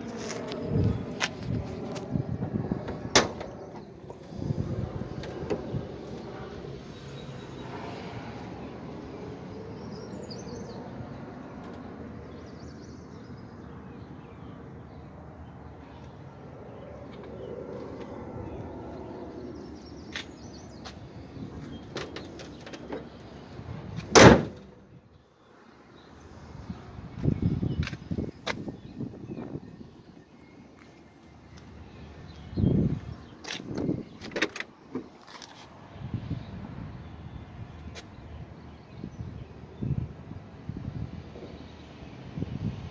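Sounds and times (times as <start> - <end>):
car hood slamming shut: 3.1 - 3.5, 24.1 - 24.6.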